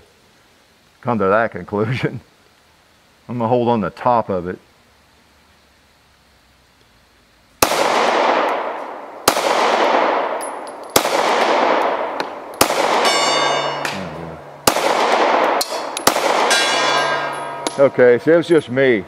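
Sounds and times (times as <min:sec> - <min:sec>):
pistol shots with echo: 0:07.6 - 0:17.9
distant steel gong ringing: 0:13.0 - 0:14.6, 0:15.6 - 0:18.2.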